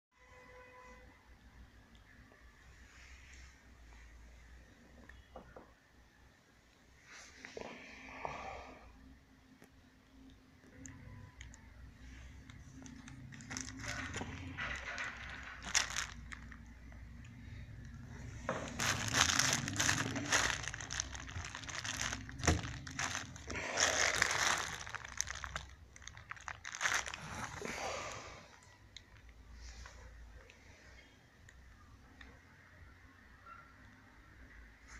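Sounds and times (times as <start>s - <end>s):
bubble wrap crinkling: 11.4s - 28.4s.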